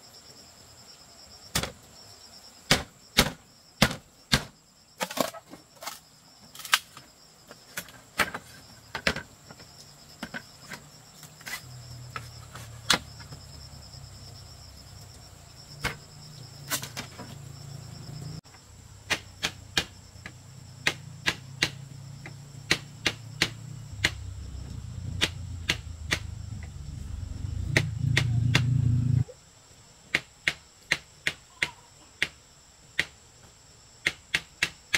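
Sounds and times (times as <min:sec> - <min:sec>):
high-pitched insect buzz: 0:09.6 - 0:18.8
sharp knocks and taps: 0:19.1 - 0:24.4, 0:25.2 - 0:26.7, 0:27.7 - 0:28.7
low steady hum: 0:20.0 - 0:29.3.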